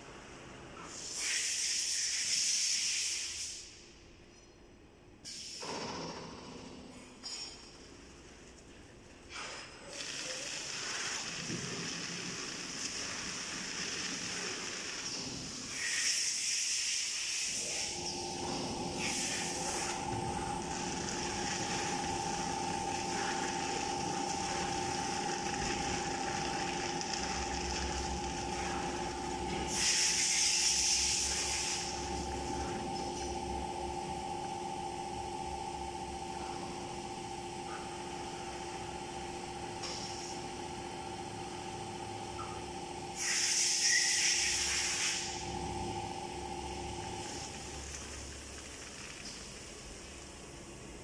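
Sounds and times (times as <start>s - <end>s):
machine hissing: 9.4s - 32.6s, 43.1s - 50.4s
two-tone motor hum: 17.5s - 43.3s, 44.0s - 51.0s.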